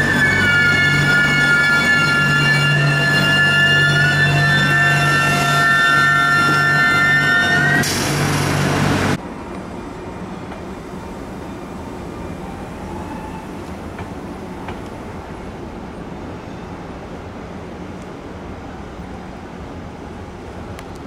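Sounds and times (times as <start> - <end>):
train rolling noise: 0.0 - 21.0.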